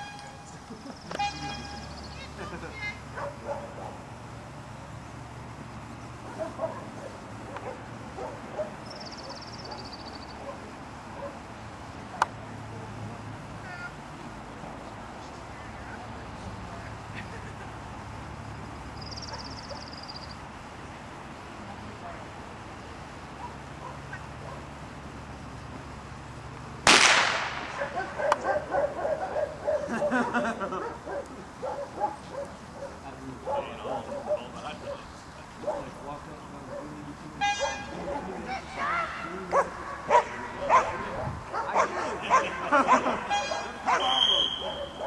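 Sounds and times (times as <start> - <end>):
open-air field ambience: 0.0 - 45.0
faint dog barks: 3.1 - 4.1, 6.2 - 11.4, 19.2 - 20.0, 23.4 - 24.7, 27.7 - 38.6, 39.4 - 45.0
loud sharp crack: 26.8 - 28.4.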